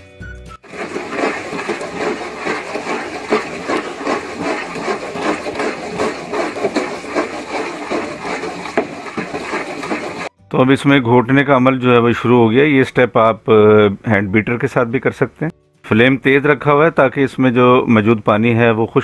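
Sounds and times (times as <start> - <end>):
masher squelching greens in pot: 0.7 - 10.3.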